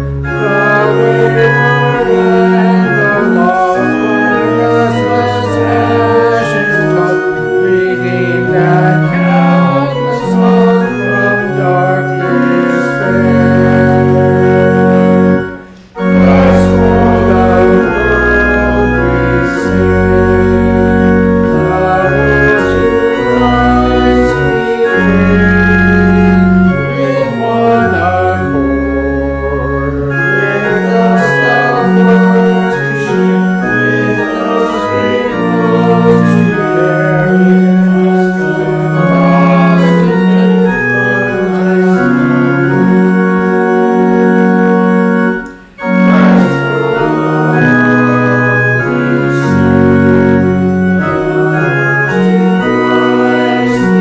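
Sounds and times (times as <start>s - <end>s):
organ playing hymn chords: 0.0s - 54.0s.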